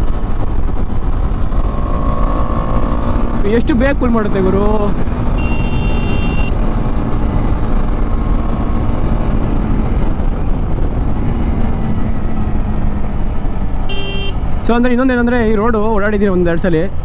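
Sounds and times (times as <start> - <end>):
motorcycle engine running: 0.0 - 14.6
wind and road noise: 0.0 - 17.0
high-pitched tone: 5.4 - 6.5.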